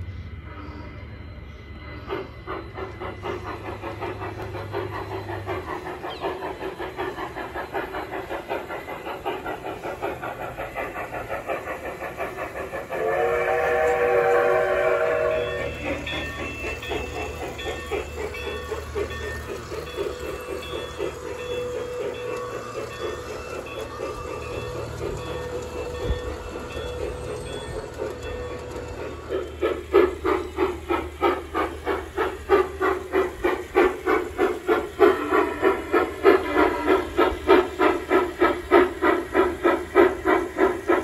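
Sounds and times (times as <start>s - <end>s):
steam locomotive whistle: 0.0s - 3.5s, 12.6s - 19.0s, 34.6s - 41.0s
model trains clattering on track: 1.6s - 41.0s.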